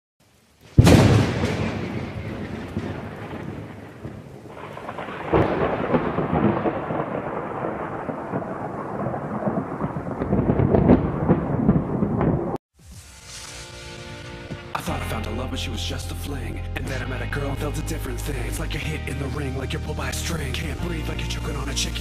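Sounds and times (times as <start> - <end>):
steady rain: 0.2 - 14.3
thunder rolling: 0.7 - 12.6.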